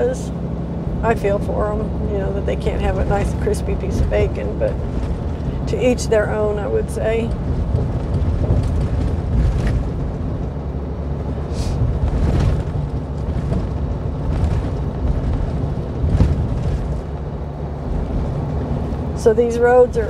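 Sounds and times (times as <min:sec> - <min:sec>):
truck tyres and engine rumbling: 0:00.0 - 0:20.0
cab knocks and rattles: 0:07.2 - 0:10.7, 0:11.8 - 0:19.0.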